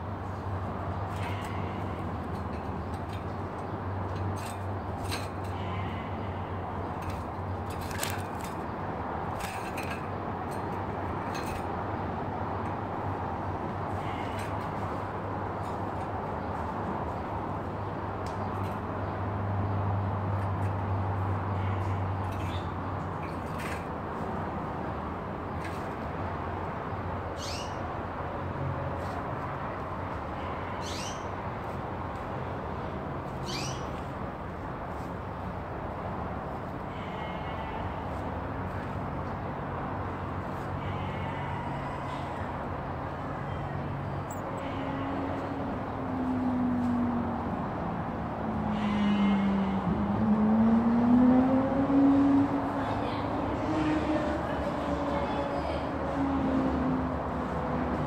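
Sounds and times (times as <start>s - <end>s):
small bird chirping: 33.4s - 33.9s.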